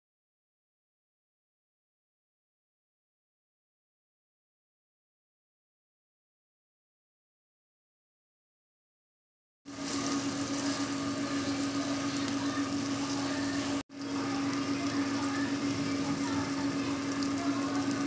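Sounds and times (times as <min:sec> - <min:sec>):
meat sizzling in a pan: 0:09.7 - 0:18.0
steady low hum: 0:09.7 - 0:18.0.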